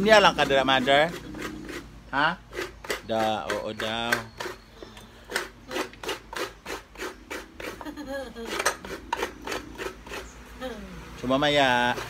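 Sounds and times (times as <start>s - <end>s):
coconut grating rasping scrape: 0.0s - 12.0s.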